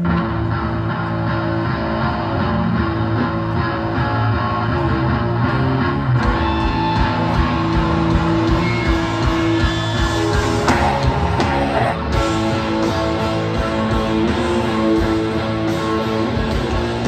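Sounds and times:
bass guitar: 0.0s - 17.0s
distorted electric guitar: 0.0s - 17.0s
punk band playing: 0.0s - 17.0s.

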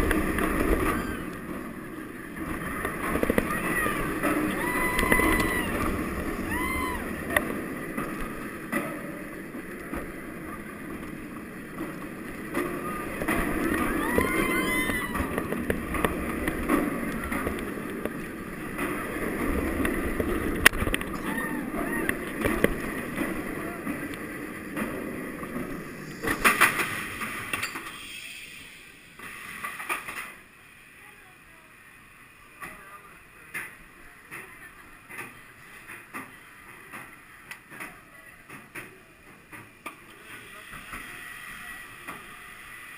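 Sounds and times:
roller coaster rattling on track: 0.0s - 30.5s, 32.2s - 42.9s
rider whooping: 3.3s - 7.6s, 12.6s - 15.5s, 21.1s - 22.4s.

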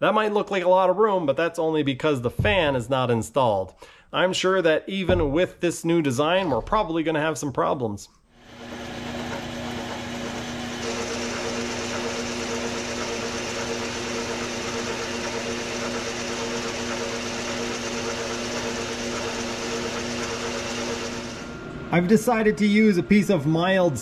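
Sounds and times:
metal lathe running: 8.4s - 24.0s.

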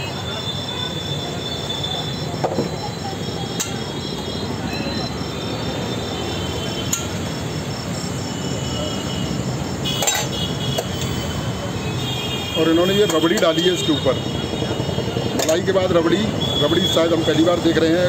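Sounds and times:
steel ladle clinking on pots: 10.0s - 10.3s.

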